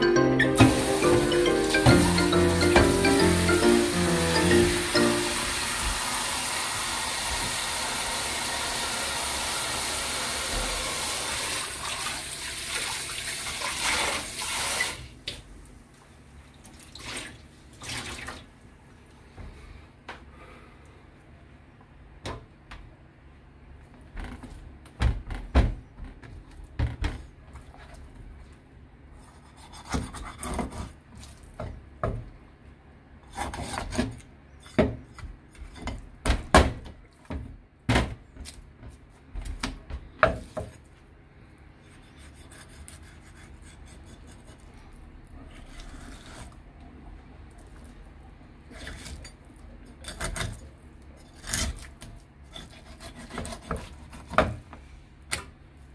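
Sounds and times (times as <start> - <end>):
knife scraping on cutting board: 29.2 - 31.0, 41.8 - 44.6, 45.5 - 46.6, 52.5 - 54.4.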